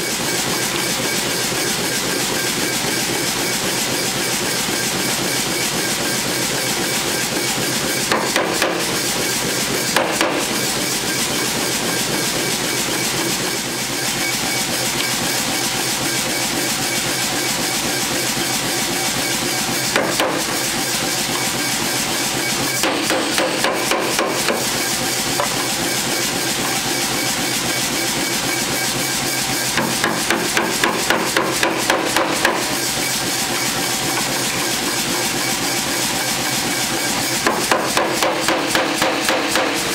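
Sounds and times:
hammer striking hot steel: 8.0s - 13.0s, 19.8s - 20.7s, 22.6s - 26.0s, 29.6s - 34.7s, 37.4s - 39.9s.

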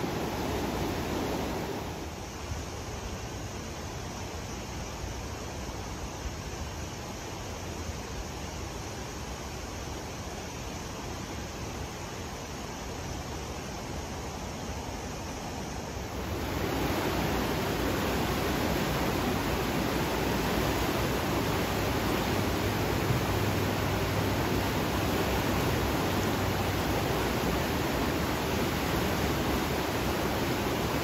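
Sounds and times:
floodwater rushing: 0.0s - 2.2s, 16.0s - 31.0s.

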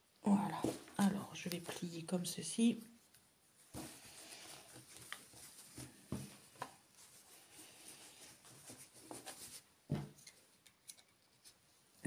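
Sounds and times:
canvas rustling: 3.5s - 9.7s.

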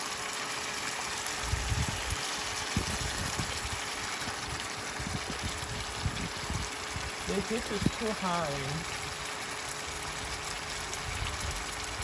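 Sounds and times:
stew bubbling in a pot: 0.0s - 12.0s.

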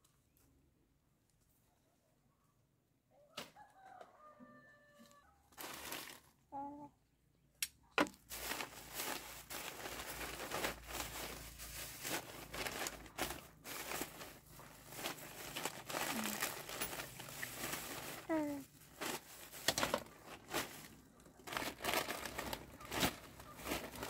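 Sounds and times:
plastic bag crinkling: 5.5s - 6.4s, 8.0s - 24.0s.

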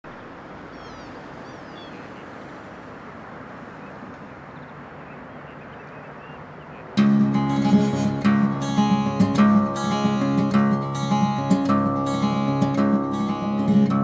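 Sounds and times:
high falling bird chirps: 0.6s - 2.4s.

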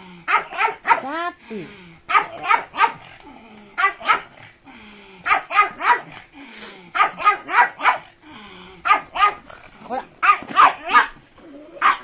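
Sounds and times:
dog barking: 0.3s - 1.1s, 2.1s - 3.1s, 3.8s - 4.4s, 5.2s - 6.2s, 7.0s - 8.1s, 8.8s - 9.4s, 10.2s - 11.2s, 11.8s - 12.0s.

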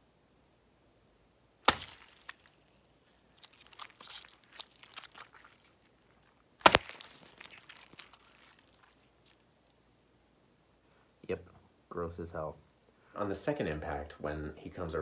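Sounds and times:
sharp wet smacks: 1.6s - 2.7s, 3.3s - 9.4s
squelching juicy pulp: 1.6s - 9.8s.

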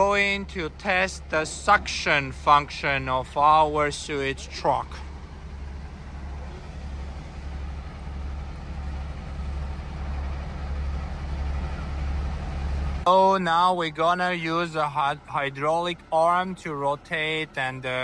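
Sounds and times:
suction truck droning: 0.0s - 18.0s.

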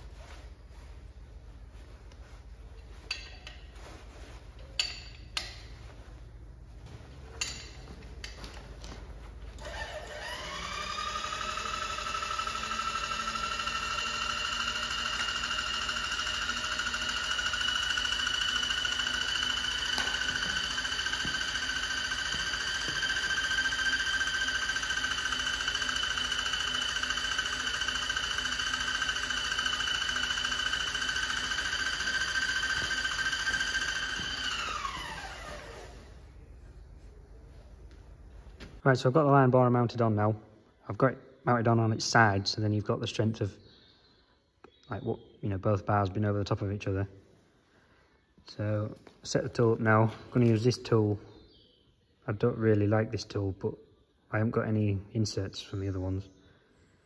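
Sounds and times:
electric motor whining: 9.6s - 36.1s.

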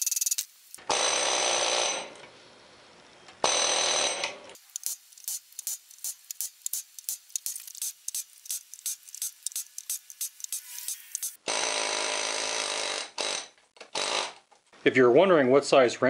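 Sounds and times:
pneumatic impact wrench hammering: 3.4s - 14.4s.

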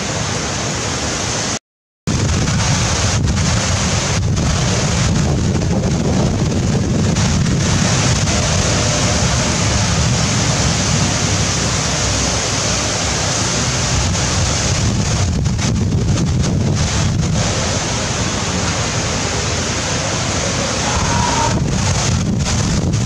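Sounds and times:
heavy rain hissing: 0.0s - 23.0s
wind buffeting microphone: 2.1s - 23.0s.

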